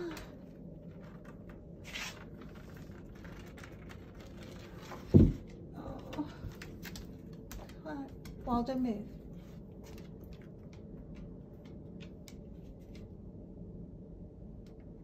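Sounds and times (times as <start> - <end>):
dog paws ticking on wooden floor: 5.2 - 13.0.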